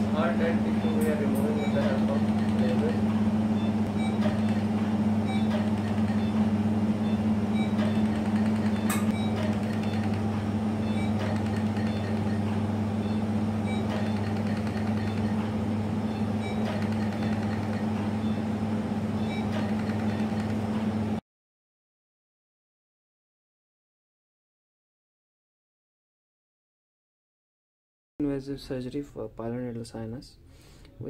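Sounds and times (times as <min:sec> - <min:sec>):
low electrical hum: 0:00.0 - 0:21.2, 0:28.2 - 0:31.0.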